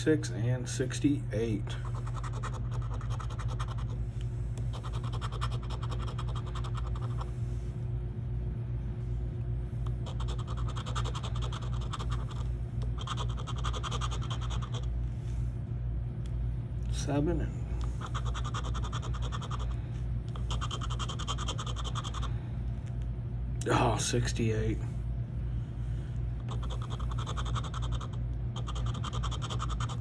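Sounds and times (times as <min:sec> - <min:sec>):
steady low hum: 0:00.0 - 0:30.0
scratching lottery ticket coating: 0:01.8 - 0:04.0, 0:04.7 - 0:07.3, 0:09.9 - 0:14.9, 0:18.0 - 0:19.7, 0:20.4 - 0:22.3, 0:26.5 - 0:30.0.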